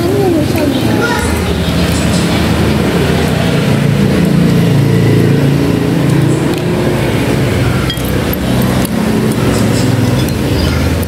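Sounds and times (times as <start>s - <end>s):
loud low hum: 0.0s - 11.0s
utensils clinking on ceramic bowl: 7.8s - 10.4s.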